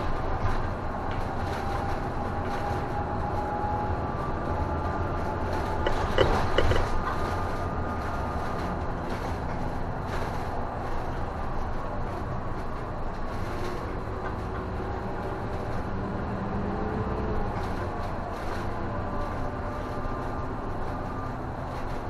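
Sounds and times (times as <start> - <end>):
bus engine and road noise: 0.0 - 22.0.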